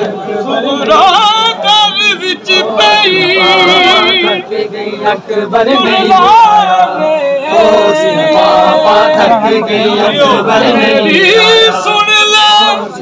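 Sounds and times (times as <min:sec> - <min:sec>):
men singing a lament: 0:00.0 - 0:13.0.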